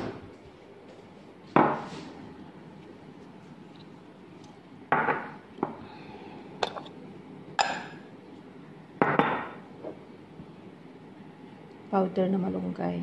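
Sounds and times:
glass jars knocking and clinking: 0:07.6 - 0:08.0.

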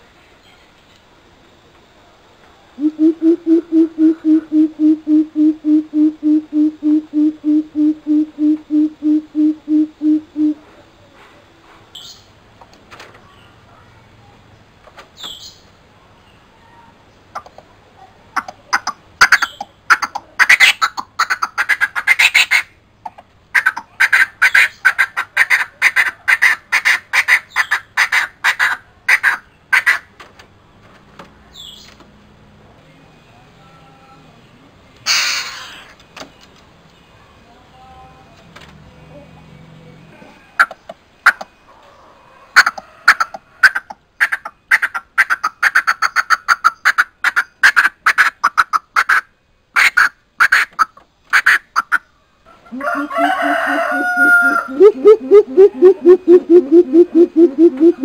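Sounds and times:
bird calling deep hoots: 0:02.8 - 0:10.6, 0:52.5 - 0:58.0.

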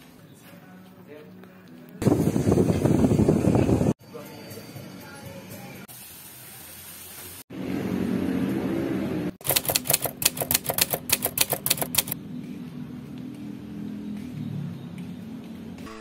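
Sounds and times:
typewriter key clacks: 0:09.4 - 0:12.2.

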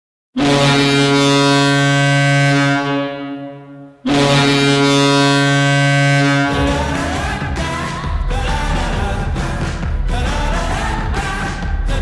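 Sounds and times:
hockey goal horn blasting: 0:00.4 - 0:07.2.

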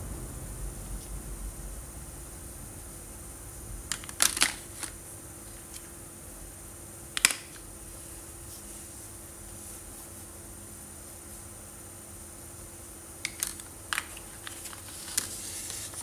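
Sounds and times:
markers clicking and tapping: 0:07.2 - 0:07.6, 0:13.2 - 0:15.8.

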